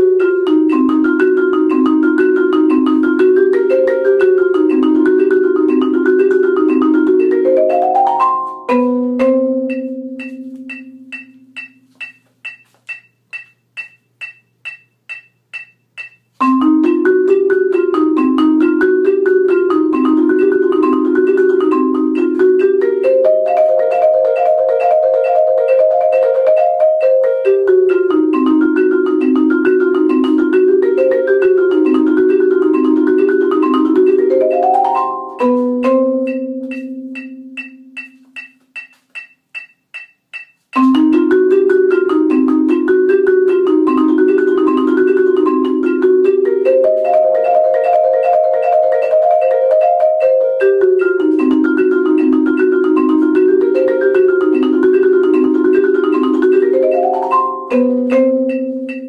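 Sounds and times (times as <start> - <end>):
steady ticking: 0.0 - 17.0, 27.4 - 49.4
marimba played with mallets: 0.0 - 59.0.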